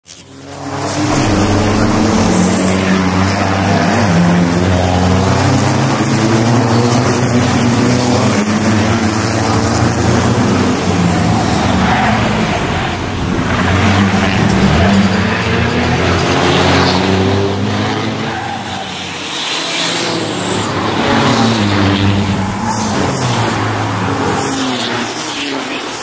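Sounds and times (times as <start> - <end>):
racing truck engines passing: 0.6 - 26.0.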